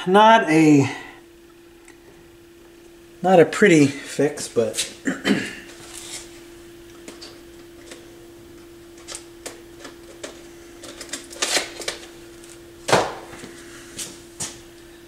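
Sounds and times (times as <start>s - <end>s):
turntable humming: 0.0s - 15.0s.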